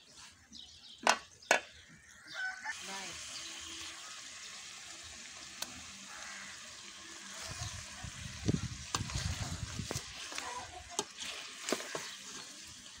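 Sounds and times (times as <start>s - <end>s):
meat sizzling in a pot: 2.4s - 13.0s
spoon stirring meat in a pot: 8.6s - 13.0s.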